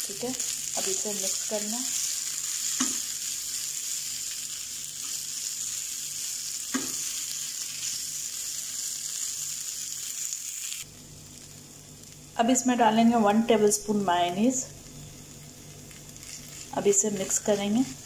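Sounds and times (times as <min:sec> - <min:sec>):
food sizzling in a frying pan: 0:00.0 - 0:18.0.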